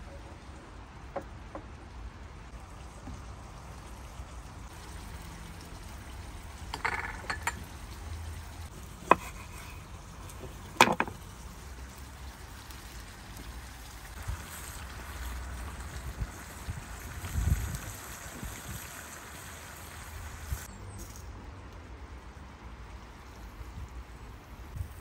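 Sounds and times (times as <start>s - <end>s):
utensils knocking on cookware: 6.7s - 7.6s.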